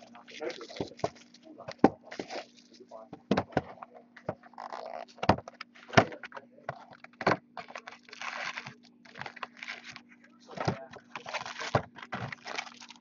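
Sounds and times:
faint steady hum: 0.0s - 13.0s
cardboard rustling and tearing: 2.0s - 2.7s, 7.6s - 10.0s, 11.0s - 13.0s.

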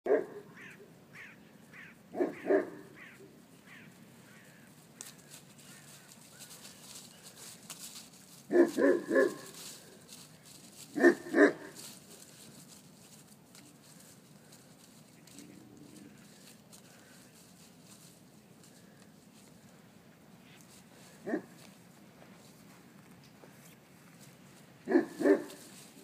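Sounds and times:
puppies barking: 0.1s - 0.8s, 2.1s - 3.2s, 8.5s - 9.9s, 10.9s - 12.3s, 24.9s - 25.7s.

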